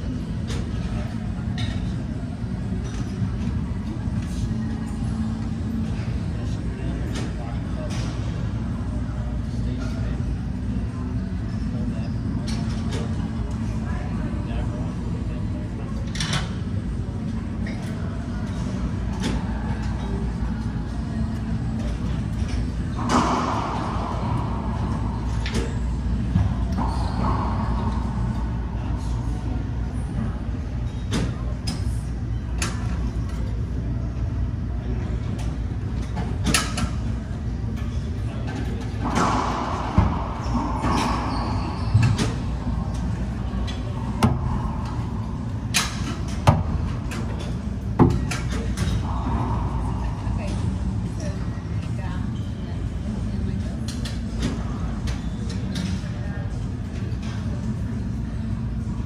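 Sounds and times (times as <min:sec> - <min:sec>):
steady low hum: 0:00.0 - 0:59.0
steady low rumble: 0:21.5 - 0:30.9, 0:37.3 - 0:53.5
racquetball hitting racquets and walls: 0:23.0 - 0:28.7, 0:39.0 - 0:43.1, 0:44.0 - 0:45.1
racquetball hits echoing: 0:39.0 - 0:42.6.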